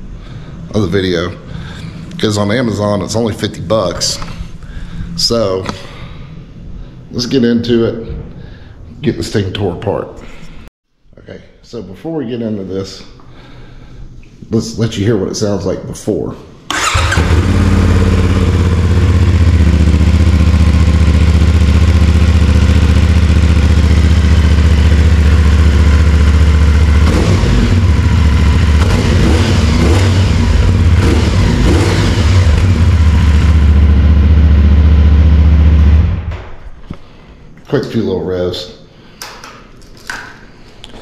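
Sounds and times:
motorcycle engine idling: 0:16.8 - 0:36.2.

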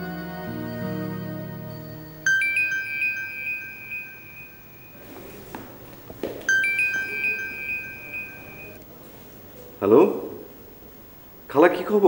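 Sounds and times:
mobile phone ringtone chimes: 0:02.2 - 0:05.6, 0:06.2 - 0:08.8.

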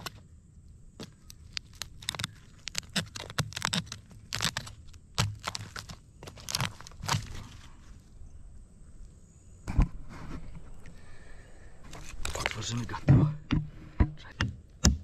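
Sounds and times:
crab shell cracking and crunching: 0:01.0 - 0:07.6.

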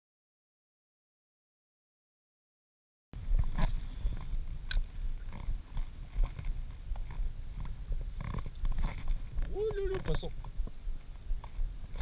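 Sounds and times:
wind buffeting microphone: 0:03.2 - 0:12.0.

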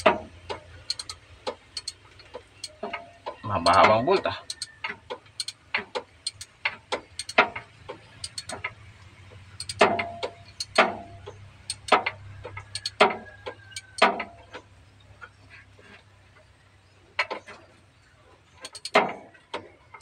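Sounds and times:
hand tool metallic clicks: 0:00.0 - 0:02.9, 0:03.6 - 0:04.7, 0:05.4 - 0:07.4, 0:08.2 - 0:08.7, 0:09.6 - 0:13.1, 0:18.6 - 0:19.0.

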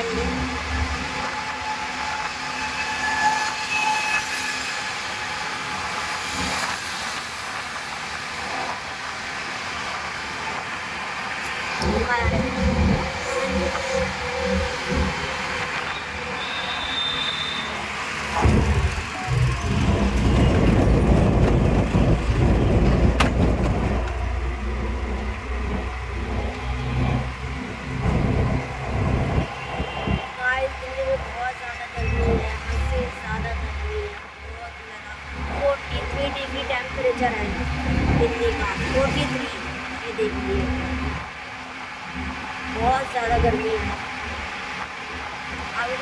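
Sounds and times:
road noise: 0:00.0 - 0:46.0
wind noise: 0:18.3 - 0:31.2.

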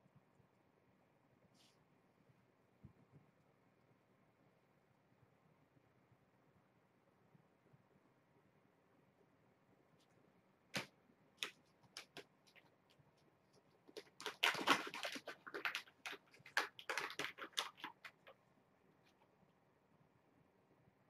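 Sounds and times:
plastic packet crinkling: 0:10.8 - 0:12.7, 0:13.8 - 0:18.3.

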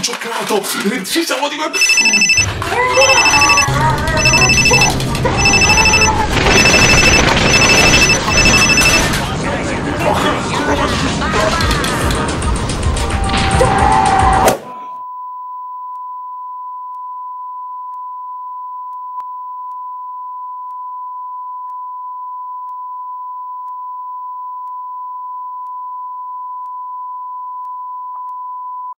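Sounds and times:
steady electronic beep tone: 0:01.8 - 0:09.1.

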